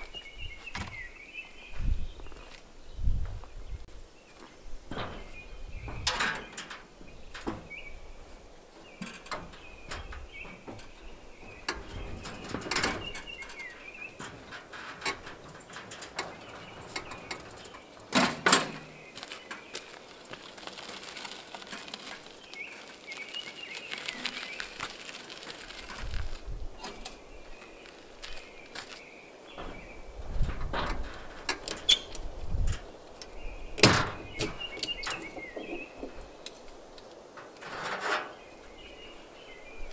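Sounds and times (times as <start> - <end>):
bird chirping: 0.0 - 14.5, 22.3 - 24.8, 31.7 - 32.4, 33.1 - 36.6, 38.2 - 39.9
wheels crunching over gravel: 0.0 - 39.9.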